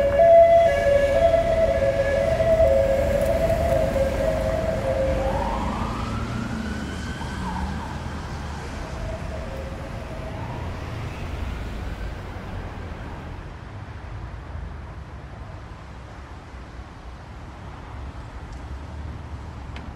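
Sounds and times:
emergency siren wailing: 0.0s - 13.4s
city traffic rumble: 0.0s - 19.9s.

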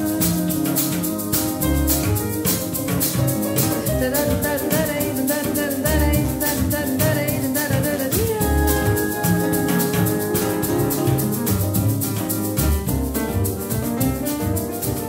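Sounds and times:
woman singing: 0.0s - 2.2s, 3.6s - 11.6s
acoustic guitar: 0.0s - 15.0s
double bass: 0.0s - 15.0s
shaker rhythm: 0.0s - 15.0s.

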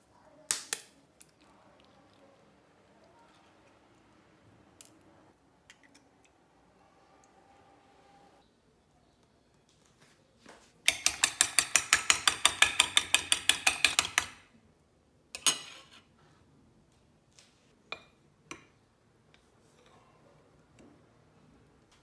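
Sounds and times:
spoon tapping on plate: 10.9s - 14.3s.

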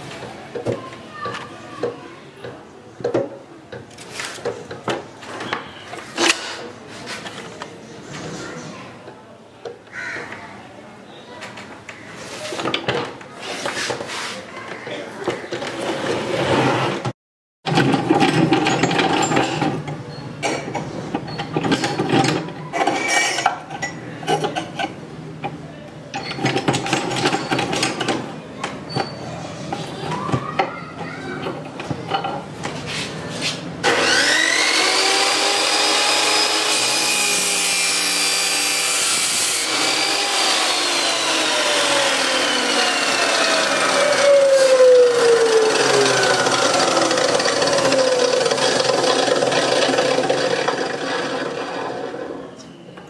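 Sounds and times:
cut-off saw motor whine: 33.8s - 50.1s.

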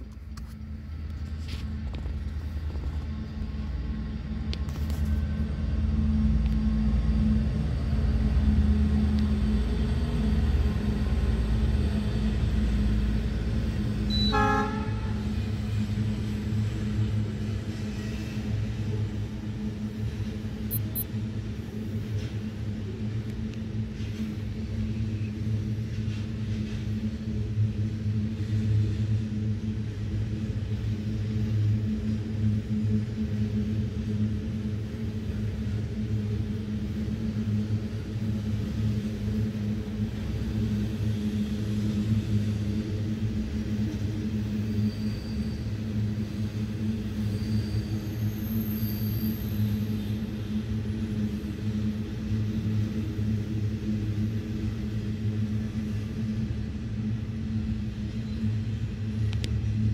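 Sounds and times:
diesel locomotive rumble: 0.0s - 59.9s
train horn toot: 14.1s - 15.3s.

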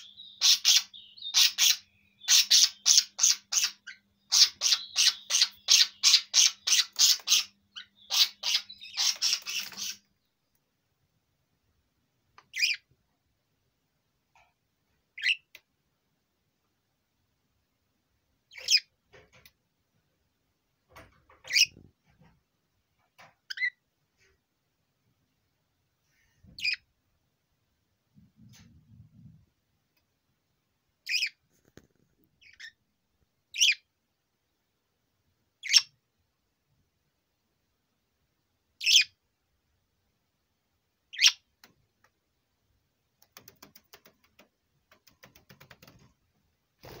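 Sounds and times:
budgerigar chirping: 0.0s - 10.1s, 12.5s - 12.9s, 15.2s - 15.5s, 31.0s - 31.4s, 33.5s - 33.9s, 35.6s - 36.0s, 38.8s - 39.2s, 41.1s - 41.5s
faint clicks: 43.1s - 46.2s.

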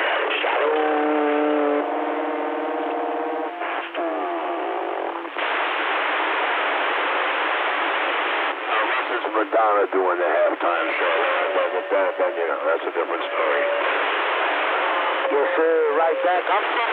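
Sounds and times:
garbled distorted radio voices: 0.0s - 2.1s, 2.8s - 5.6s, 8.4s - 16.9s
buzzy radio tone: 0.0s - 16.9s
radio static hiss: 0.0s - 16.9s.

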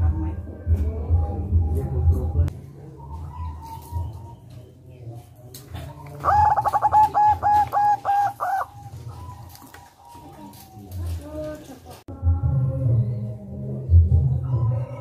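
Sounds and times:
dove cooing: 2.6s - 12.0s.

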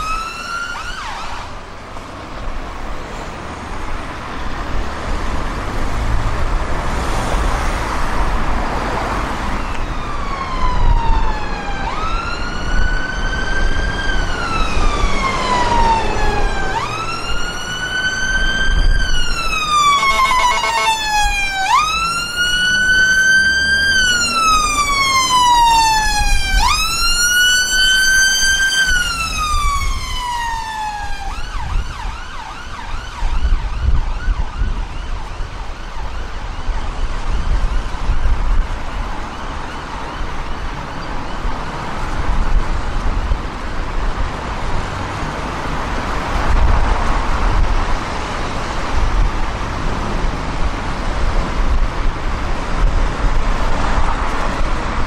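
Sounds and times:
ambulance siren wailing: 0.0s - 1.8s, 9.0s - 43.0s
road traffic rumble: 0.0s - 55.0s.

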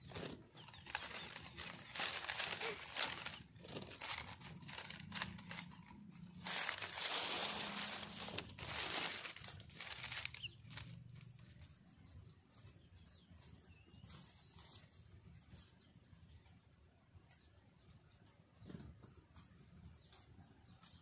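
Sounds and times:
rustling and crinkling handling noise: 0.0s - 15.2s.

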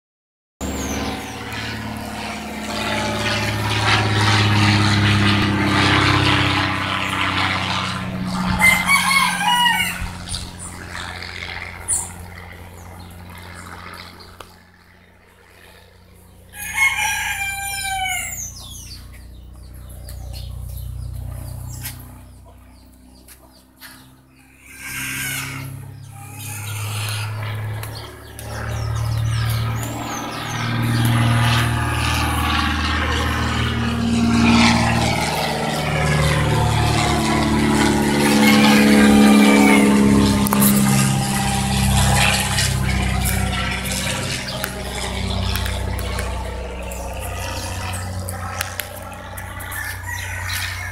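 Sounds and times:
propeller airplane droning: 0.6s - 50.9s
rooster crowing: 8.4s - 10.4s, 16.5s - 18.6s, 24.5s - 27.3s, 37.4s - 40.4s, 49.4s - 50.9s.

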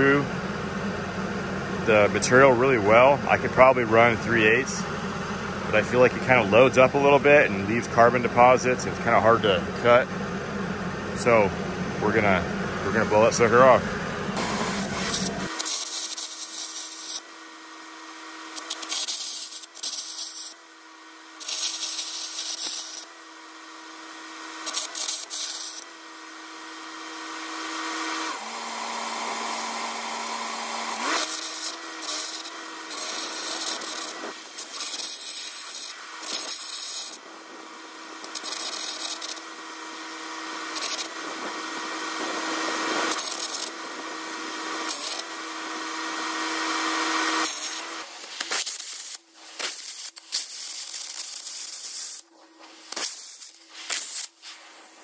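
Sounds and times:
steady low hum: 0.0s - 50.3s
arc and air jet hissing: 14.4s - 17.3s, 18.4s - 20.6s, 21.3s - 23.1s, 24.6s - 25.8s, 29.6s - 37.2s, 38.2s - 39.4s, 40.7s - 43.7s, 47.3s - 55.0s.

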